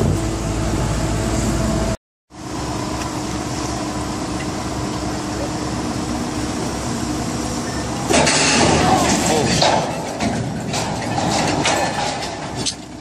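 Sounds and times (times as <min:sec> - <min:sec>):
crane engine humming: 0:00.0 - 0:13.0
sudden harsh noise: 0:07.6 - 0:12.3.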